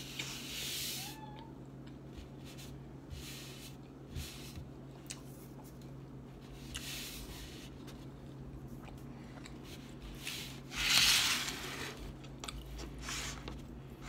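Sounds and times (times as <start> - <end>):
low steady hum: 0.0 - 14.0
plastic container rustling scrape: 10.2 - 12.1.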